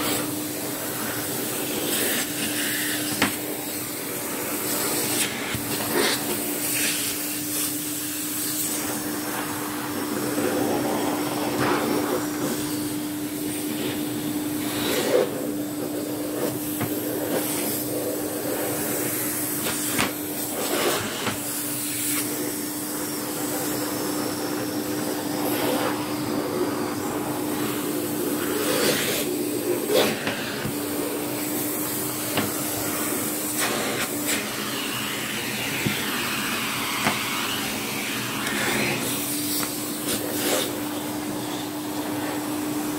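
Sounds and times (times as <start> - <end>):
vacuum cleaner running: 0.0 - 42.9.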